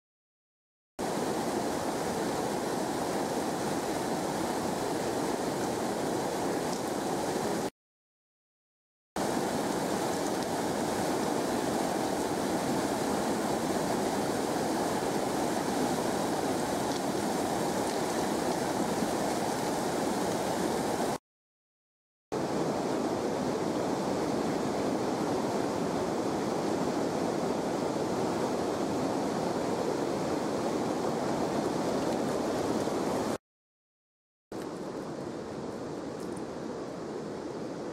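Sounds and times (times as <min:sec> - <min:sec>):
water rushing over waterfall: 0:01.0 - 0:07.7, 0:09.2 - 0:21.2, 0:22.4 - 0:33.4.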